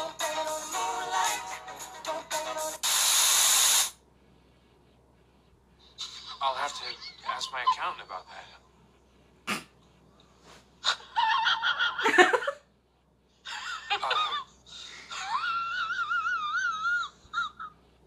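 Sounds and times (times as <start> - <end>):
woman wheezing laughter: 10.8 - 12.6, 13.5 - 17.8
woman squealing: 15.2 - 17.6.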